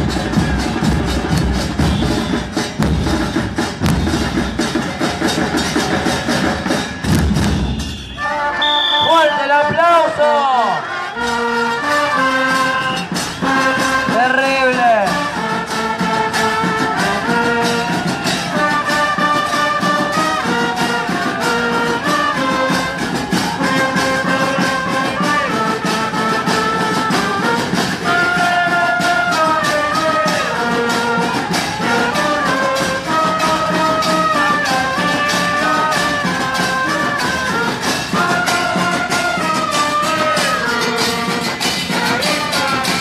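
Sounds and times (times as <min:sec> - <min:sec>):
bass drums beating: 0:00.0 - 0:08.2.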